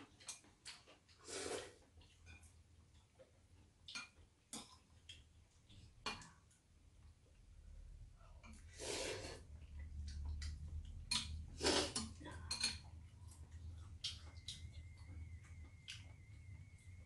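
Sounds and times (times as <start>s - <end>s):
noisy slurp of noodles: 1.2s - 1.9s, 8.7s - 9.4s, 11.6s - 12.0s
chopsticks clicking against bowls: 3.8s - 6.4s, 10.0s - 16.4s.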